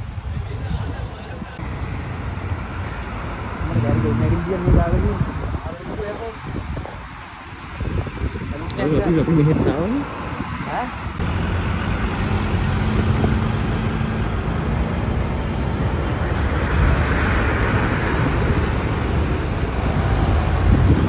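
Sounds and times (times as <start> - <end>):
road traffic driving past: 0.0 - 21.0
bus passing close: 7.1 - 21.0.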